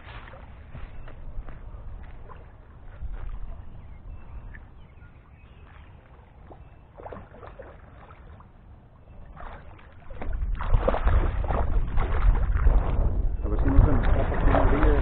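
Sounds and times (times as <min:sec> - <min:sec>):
fish thrashing and water splashing: 0:05.6 - 0:15.0.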